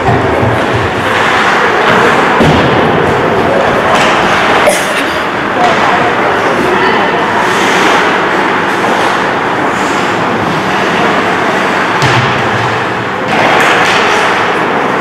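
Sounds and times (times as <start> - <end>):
thud: 0.0 - 3.2, 11.9 - 14.4.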